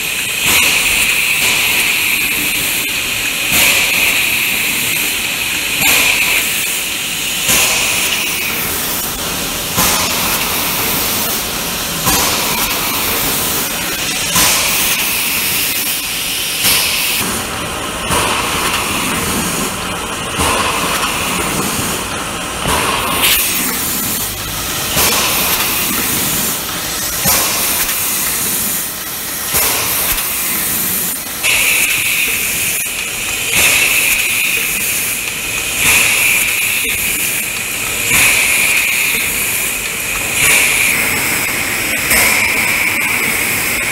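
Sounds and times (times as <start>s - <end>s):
packing machine mechanical hiss: 0.0s - 43.9s
air hiss bursts: 23.0s - 43.9s.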